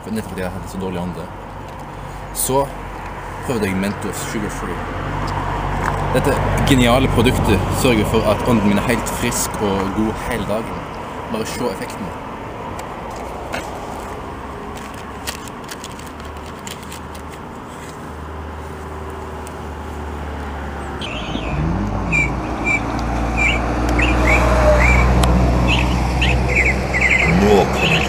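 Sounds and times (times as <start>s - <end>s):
birds chirping: 20.7s - 28.0s.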